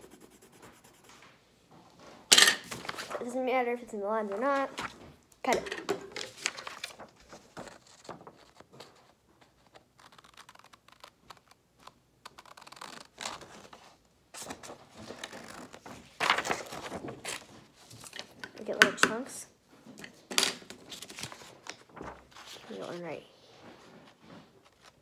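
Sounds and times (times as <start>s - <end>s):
paper rustling: 2.6s - 3.4s, 4.2s - 5.2s, 6.1s - 18.4s, 20.6s - 25.0s.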